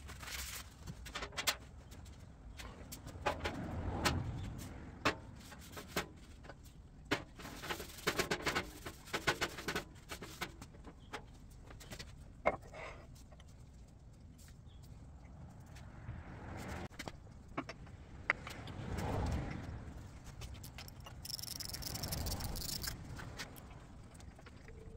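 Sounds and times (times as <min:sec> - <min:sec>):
metal tools clicking and knocking: 0:20.4 - 0:23.7.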